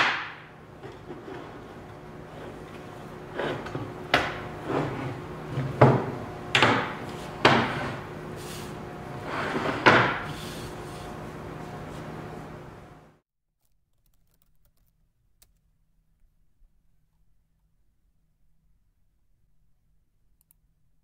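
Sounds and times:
wooden shelf frames knocking: 5.6s - 7.9s.

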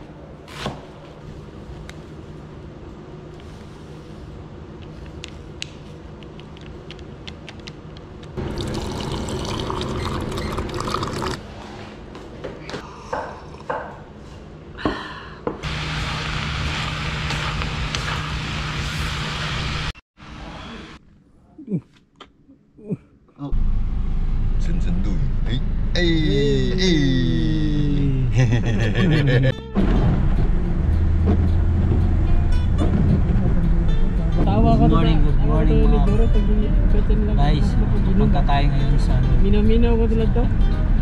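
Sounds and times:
water running into a mug: 8.4s - 11.4s.

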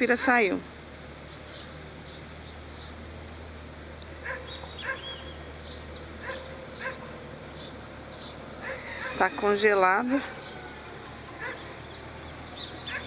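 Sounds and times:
animal yips and high chirps: 4.2s - 5.3s.

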